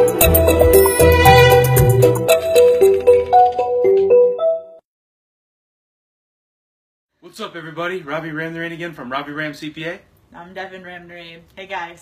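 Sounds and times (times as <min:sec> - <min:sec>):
intro jingle melody: 0:00.0 - 0:04.8.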